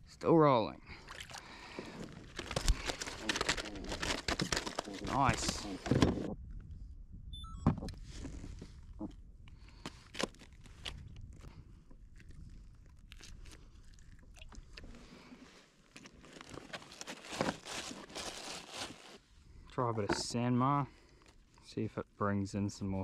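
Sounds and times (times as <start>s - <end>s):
rustling: 1.4s - 6.3s, 9.7s - 19.3s.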